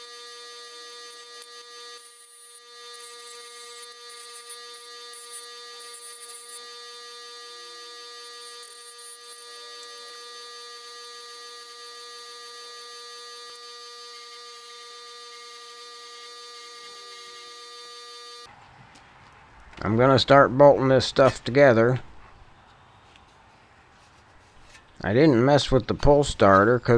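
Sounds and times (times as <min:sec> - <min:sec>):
wire wheel grinder high-pitched buzz: 0:00.0 - 0:18.5.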